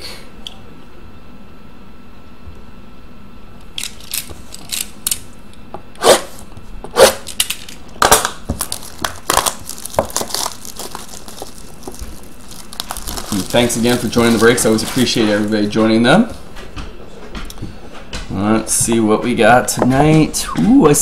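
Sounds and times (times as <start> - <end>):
plastic wrap crinkling: 7.6 - 16.4
plastic wrap tearing: 8.0 - 16.0.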